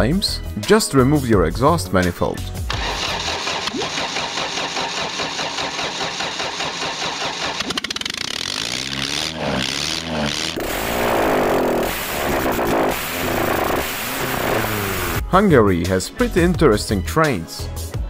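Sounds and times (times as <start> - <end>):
engine with harsh exhaust rattle: 2.7 - 15.2.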